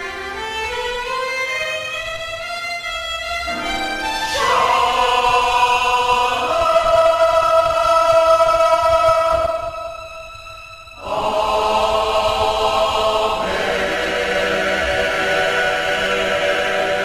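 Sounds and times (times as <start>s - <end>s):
solo violin melody: 0.0s - 6.8s, 9.3s - 12.0s
choir singing a held chord: 3.5s - 10.0s, 11.0s - 17.0s.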